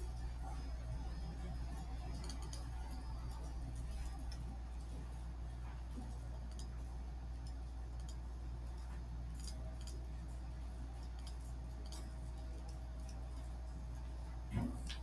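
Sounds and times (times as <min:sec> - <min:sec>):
steady low hum: 0:00.0 - 0:15.0
computer mouse clicks: 0:06.0 - 0:06.8, 0:07.4 - 0:10.1.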